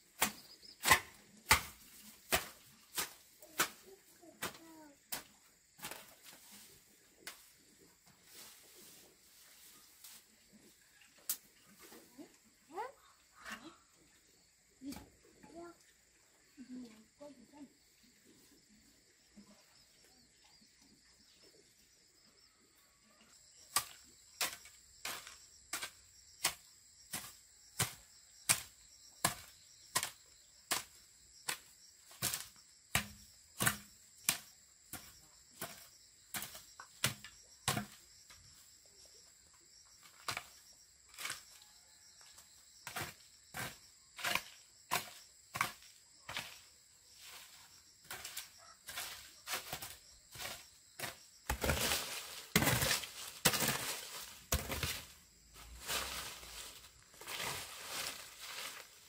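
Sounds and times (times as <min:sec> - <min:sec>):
broom sweeping leaves on dirt: 0:00.0 - 0:11.0, 0:42.8 - 0:59.0.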